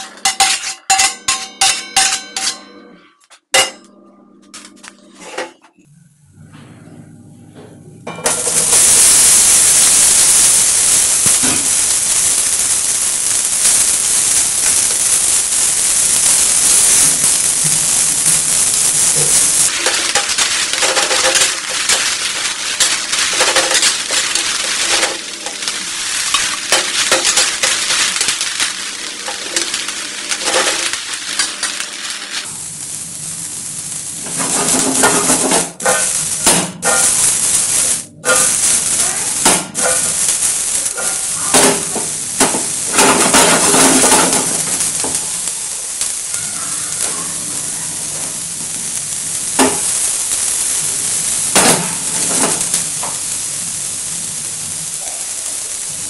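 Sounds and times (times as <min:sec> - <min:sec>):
vegetables sizzling in pan: 0:00.0 - 0:02.6, 0:08.2 - 0:56.0
stirring scraping pan: 0:19.0 - 0:32.5.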